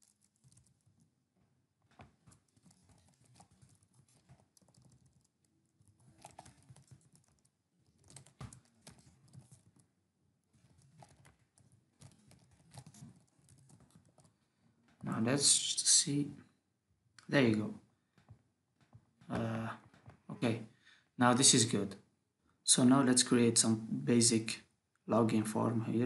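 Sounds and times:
faint keyboard typing: 0.0s - 1.2s, 1.8s - 10.0s, 10.6s - 15.1s.

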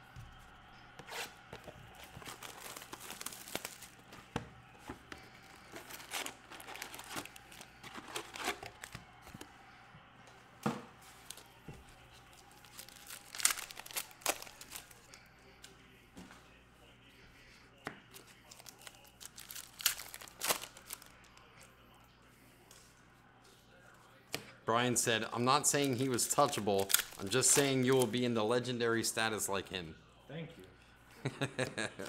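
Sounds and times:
packaging tearing and crinkling: 2.1s - 4.0s, 5.6s - 9.0s, 12.6s - 15.0s, 18.5s - 21.1s, 26.8s - 28.1s.

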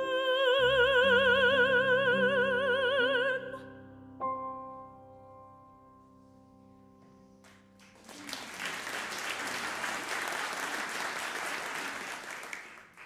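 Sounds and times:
audience applauding: 7.5s - 13.0s.

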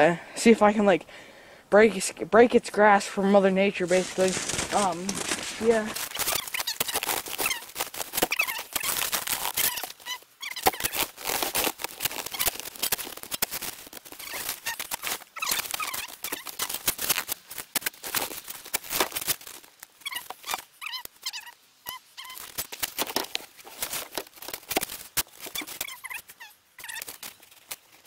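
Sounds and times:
boots crunching snow: 3.8s - 9.8s.

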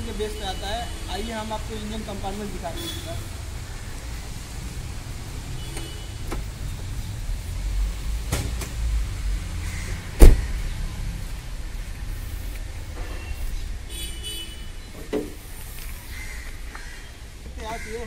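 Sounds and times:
car door shutting thump: 10.2s - 10.5s.

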